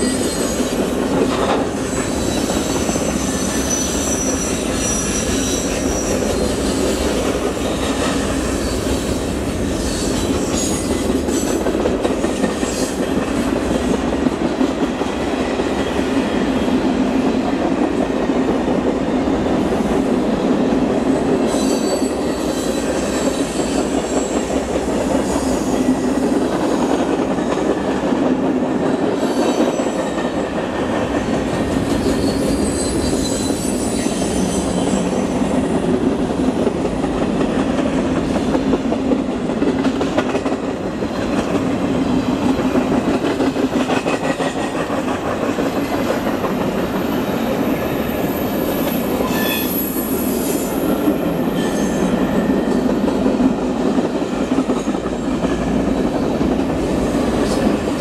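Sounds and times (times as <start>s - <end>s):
steel wheels rumbling on rail: 0.0s - 58.0s
high-pitched wheel squeal: 1.9s - 7.0s, 32.1s - 35.1s, 49.2s - 50.7s.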